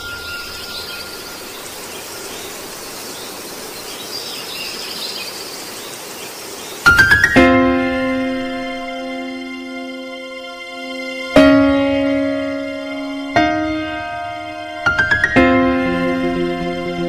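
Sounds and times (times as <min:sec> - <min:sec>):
faint high chirps: 0:00.0 - 0:04.2
steady hiss: 0:00.0 - 0:17.0
struck notes and held chord: 0:06.9 - 0:17.0.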